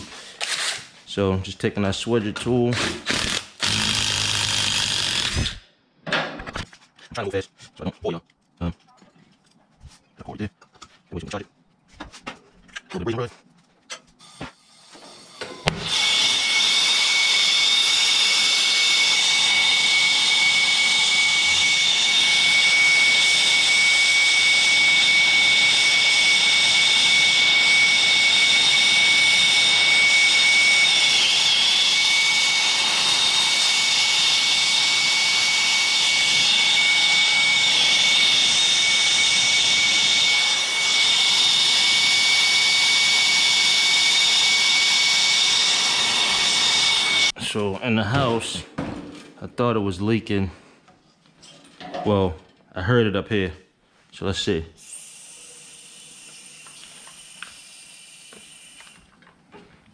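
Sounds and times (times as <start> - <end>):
brazing torch hissing: 54.8 - 59.1.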